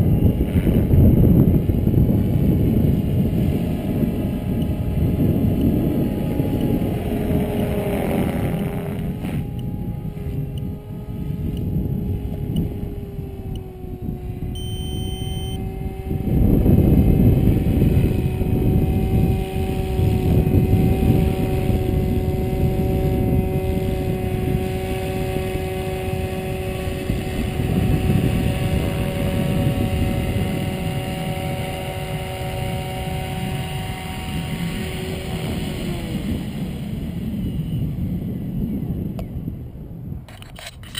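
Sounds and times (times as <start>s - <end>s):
rc helicopter rotor whining: 0.0s - 39.5s, 40.2s - 40.9s
short high beep: 14.6s - 15.6s.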